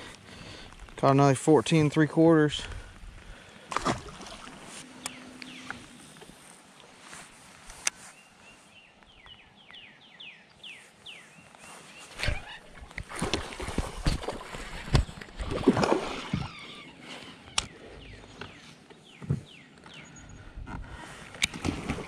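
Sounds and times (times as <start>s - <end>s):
bird singing falling notes: 4.9s - 6.2s.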